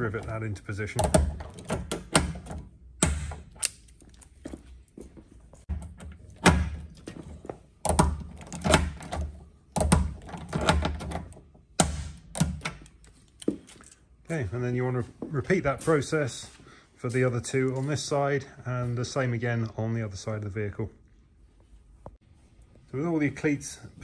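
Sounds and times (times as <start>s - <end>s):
rivet gun clicking and snapping: 3.5s - 4.0s.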